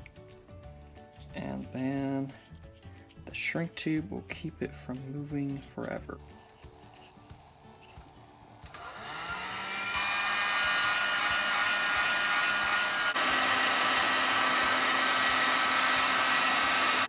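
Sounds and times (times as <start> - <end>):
heat gun blowing: 6.3 - 17.0.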